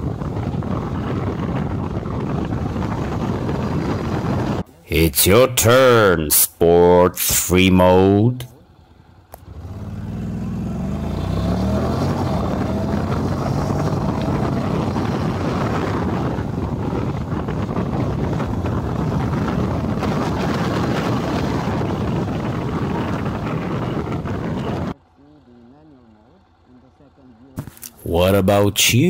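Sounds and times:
wind on microphone: 0:00.0 - 0:04.6, 0:11.4 - 0:25.0
motorcycle engine accelerating: 0:08.7 - 0:26.7.

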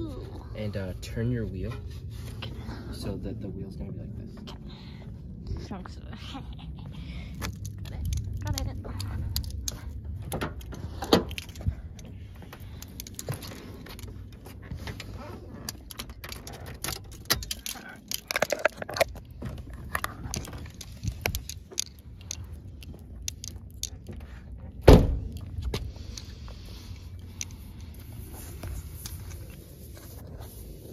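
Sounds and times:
handling clicks and knocks: 0:07.4 - 0:26.3
car door shutting: 0:24.8 - 0:25.3.

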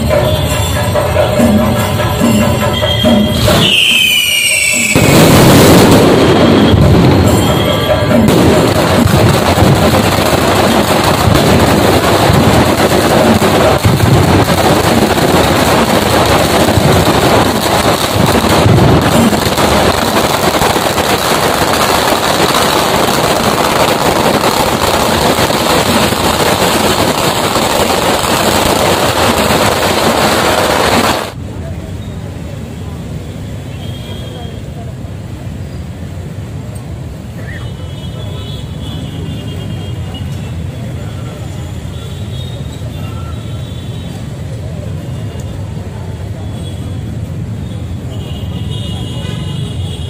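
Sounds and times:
firecrackers going off: 0:00.0 - 0:32.4, 0:33.3 - 0:50.0.

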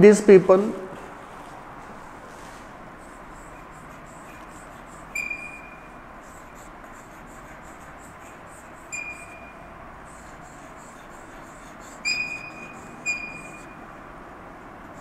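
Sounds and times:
chalk scratching on chalkboard: 0:02.3 - 0:13.9
chalk squeak: 0:03.0 - 0:13.9.

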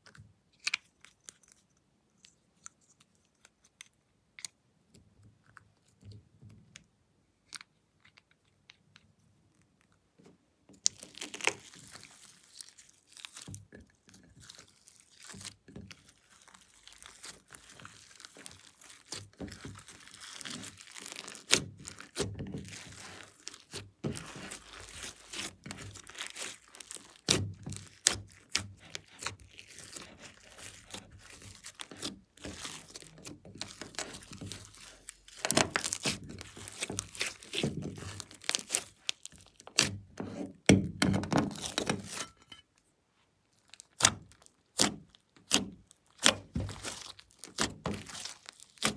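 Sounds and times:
slime squishing: 0:10.7 - 0:42.6, 0:43.5 - 0:48.9
slime crackles and pops: 0:10.8 - 0:13.7, 0:14.4 - 0:40.0, 0:43.7 - 0:48.9.

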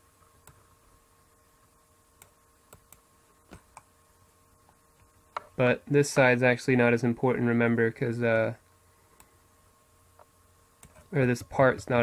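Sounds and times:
computer mouse clicks: 0:02.2 - 0:03.9, 0:10.2 - 0:11.1.

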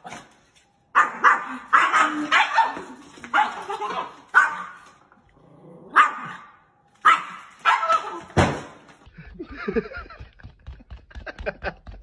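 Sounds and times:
small dog barking sharply: 0:01.0 - 0:03.6, 0:04.3 - 0:04.8, 0:06.0 - 0:08.2.

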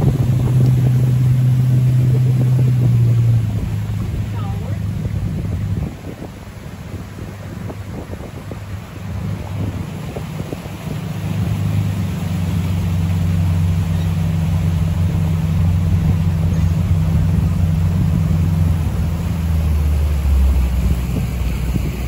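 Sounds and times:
motorboat engine humming: 0:00.0 - 0:22.0.

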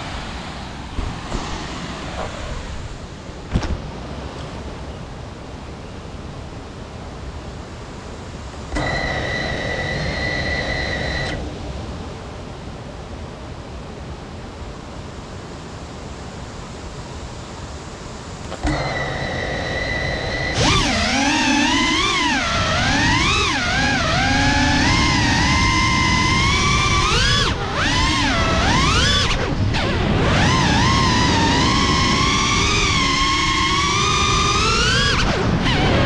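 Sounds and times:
drone motors whining: 0:08.7 - 0:11.5, 0:18.5 - 0:36.0.

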